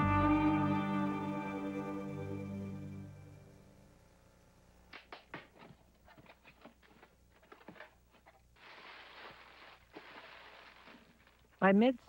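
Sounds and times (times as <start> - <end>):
soft steady hiss: 0.0 - 12.0.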